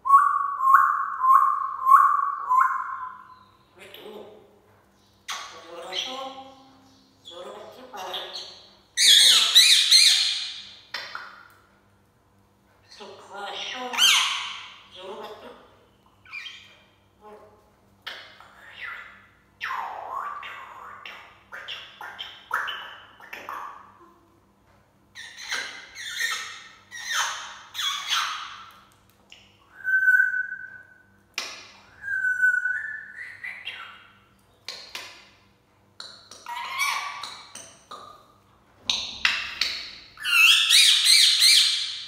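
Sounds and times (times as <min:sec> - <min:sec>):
parrots squawking: 0:07.3 - 0:10.8, 0:13.2 - 0:15.5, 0:25.2 - 0:28.7, 0:36.4 - 0:38.1, 0:39.2 - 0:42.0
parrot whistles: 0:29.7 - 0:30.9, 0:32.0 - 0:33.6.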